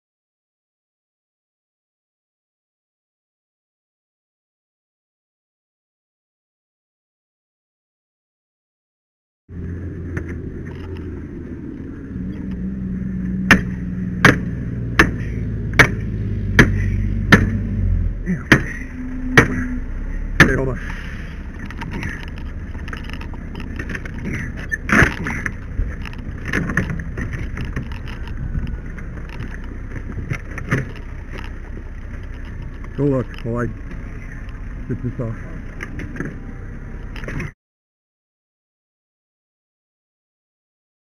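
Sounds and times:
engine hum: 9.5s - 37.6s
axe striking metal bar: 13.4s - 17.7s, 18.4s - 19.8s.

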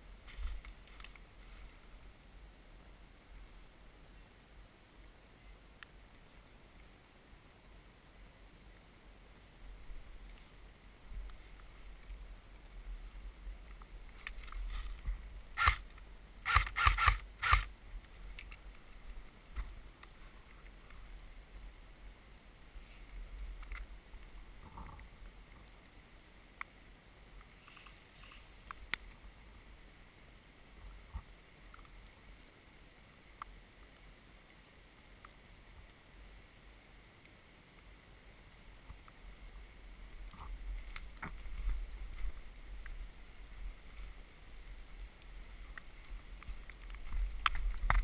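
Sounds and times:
faint steady hiss: 0.0s - 48.0s
airsoft gun shots: 16.5s - 17.7s.

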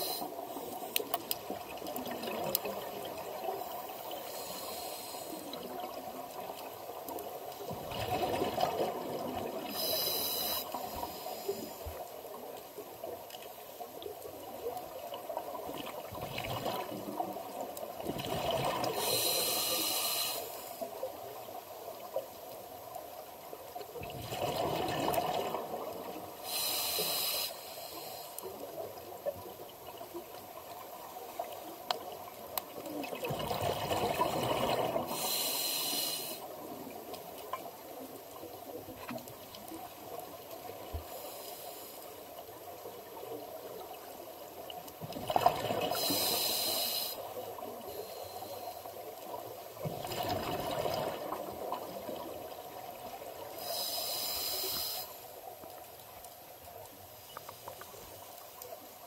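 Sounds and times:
regulator inhalation hiss: 0.0s - 1.1s, 3.4s - 5.7s, 9.7s - 12.0s, 19.0s - 21.0s, 26.4s - 28.6s, 35.1s - 36.6s, 41.1s - 42.2s, 45.9s - 48.9s, 53.5s - 55.4s
rumbling exhaled bubbles: 7.8s - 9.6s, 24.0s - 26.0s, 33.0s - 35.1s, 49.9s - 52.2s.

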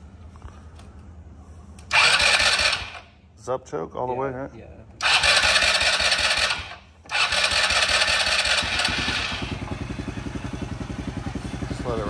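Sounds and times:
engine cranking: 1.9s - 3.0s, 5.0s - 9.8s
engine idling: 1.9s - 3.2s, 5.0s - 12.0s.

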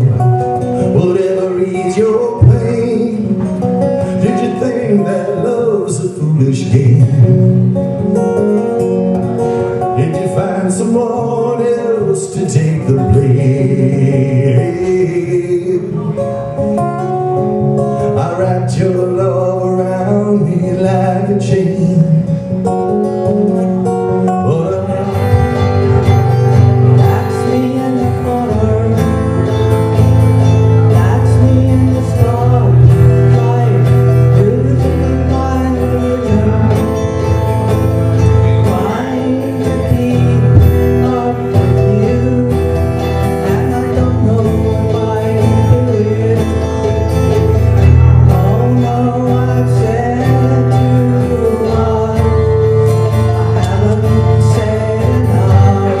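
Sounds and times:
acoustic guitar: 0.0s - 56.0s
man singing: 0.0s - 56.0s
deep bass: 17.6s - 56.0s.

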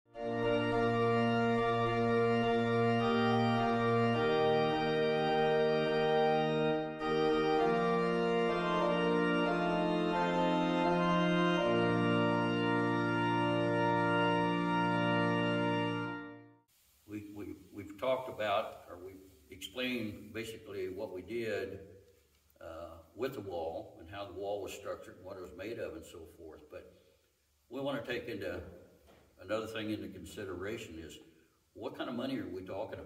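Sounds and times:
organ playing slow held chords: 0.1s - 16.6s.

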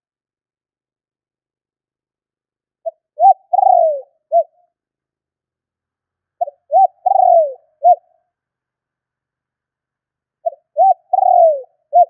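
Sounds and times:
dove cooing: 2.8s - 4.6s, 6.4s - 8.2s, 10.4s - 12.0s.

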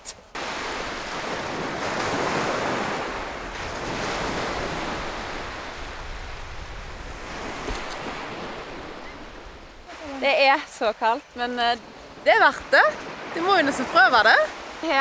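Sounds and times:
waves washing up a beach: 0.3s - 15.0s
wind rumbling on microphone: 0.7s - 10.2s.

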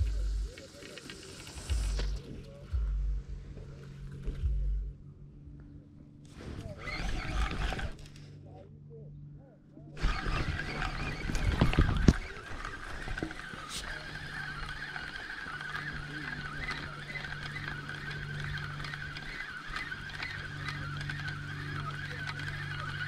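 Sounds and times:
fishing reel whirring: 0.0s - 2.4s, 6.3s - 8.3s, 10.0s - 23.0s
rod and reel thumps: 6.3s - 8.3s, 10.0s - 23.0s.

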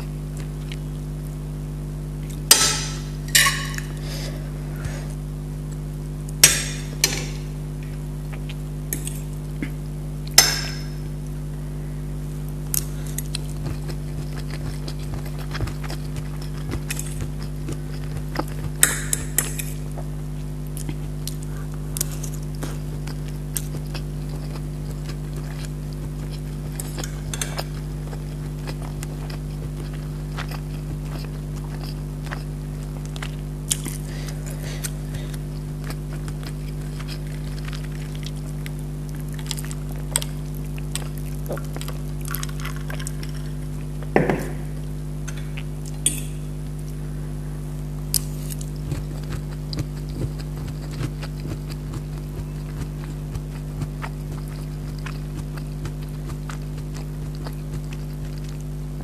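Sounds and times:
steady low hum: 0.0s - 59.0s
chewing: 0.3s - 1.4s, 2.2s - 11.4s, 12.4s - 47.0s, 48.0s - 58.9s
fork tapping and scraping plates: 2.5s - 4.0s.

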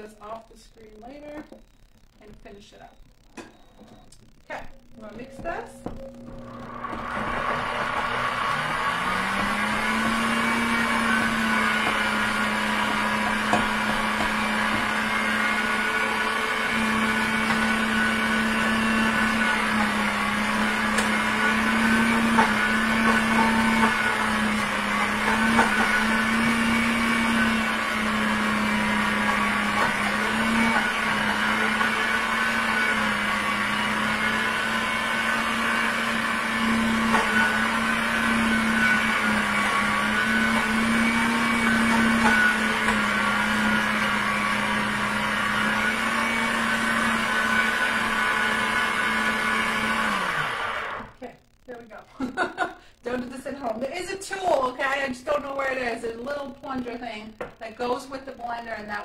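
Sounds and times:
blender motor running: 5.0s - 51.2s.

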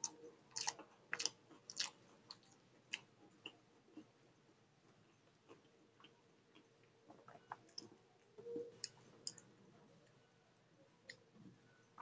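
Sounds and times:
wet chewing mouth clicks: 0.0s - 4.1s.

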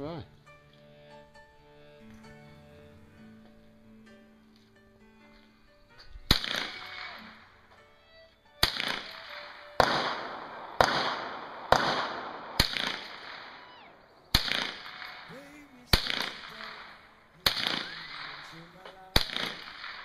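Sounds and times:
faint background music: 0.0s - 20.0s
rifle shots with echo: 6.3s - 7.3s, 8.6s - 20.0s.

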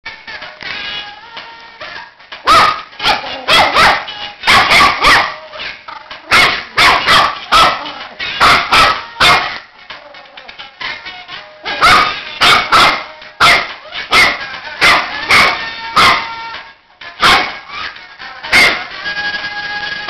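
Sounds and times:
puppy barking: 2.4s - 5.4s, 6.3s - 9.6s, 11.6s - 16.4s, 17.2s - 17.7s, 18.5s - 18.9s.

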